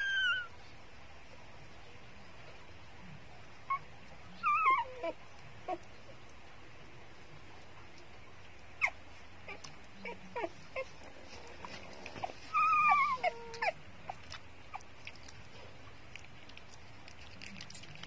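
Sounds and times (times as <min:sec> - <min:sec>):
puppies squeaking and whimpering: 0:00.0 - 0:00.6, 0:03.6 - 0:06.0, 0:08.8 - 0:15.4
puppy wavering cry: 0:00.0 - 0:00.6, 0:03.7 - 0:05.9, 0:08.8 - 0:11.0, 0:12.2 - 0:14.9.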